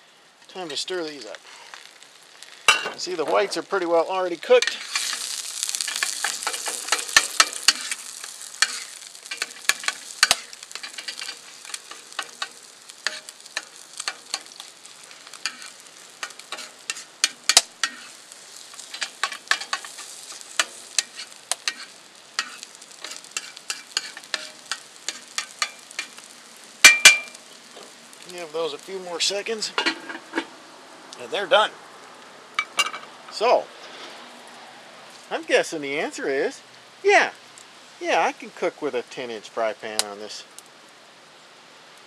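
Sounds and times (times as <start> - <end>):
eggs sizzling in a pan: 0.0 - 42.0
spatula scraping and tapping pan: 4.5 - 27.9, 29.7 - 30.5.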